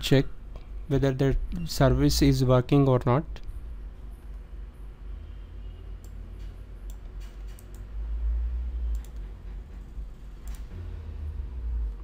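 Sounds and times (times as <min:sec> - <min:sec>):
computer keyboard keys clicking: 0:06.9 - 0:07.9, 0:08.9 - 0:09.2
low rumble: 0:07.9 - 0:12.0.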